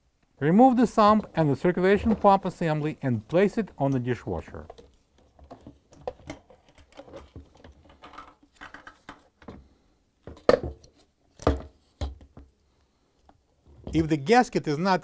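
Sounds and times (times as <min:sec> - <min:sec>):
plastic pump assembly rattling: 0:04.6 - 0:09.6.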